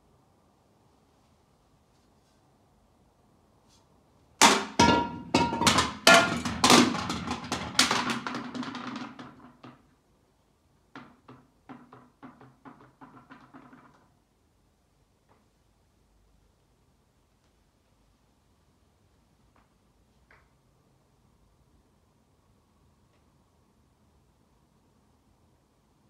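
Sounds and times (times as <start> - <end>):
hollow mannequin heads knocking: 4.4 - 9.8.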